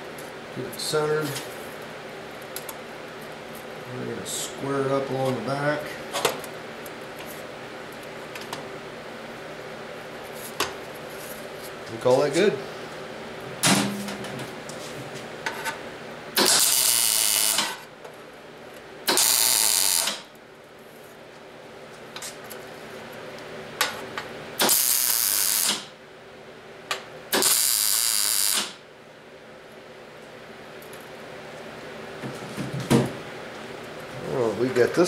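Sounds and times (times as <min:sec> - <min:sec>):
welder arc crackling: 0:16.4 - 0:17.8, 0:19.1 - 0:20.3, 0:24.6 - 0:25.9, 0:27.4 - 0:28.8.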